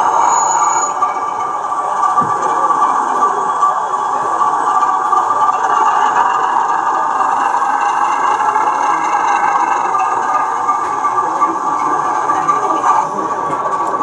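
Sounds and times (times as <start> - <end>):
model train engine beat: 0.0 - 14.0.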